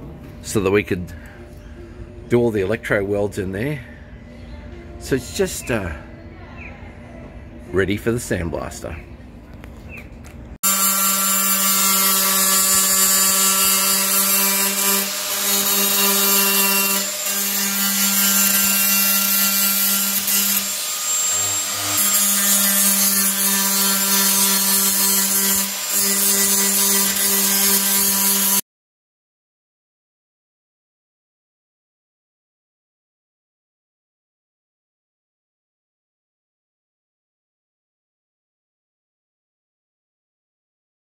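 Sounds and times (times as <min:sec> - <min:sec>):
angle grinder grinding steel: 0:10.6 - 0:28.6.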